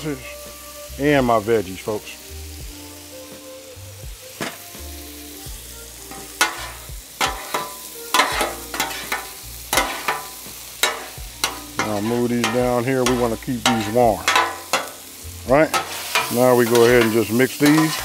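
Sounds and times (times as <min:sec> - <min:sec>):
food sizzling in butter: 0:00.0 - 0:18.0
sharp spatula strikes: 0:06.1 - 0:15.0, 0:15.7 - 0:18.0
metal spatulas scraping griddle: 0:06.1 - 0:18.0.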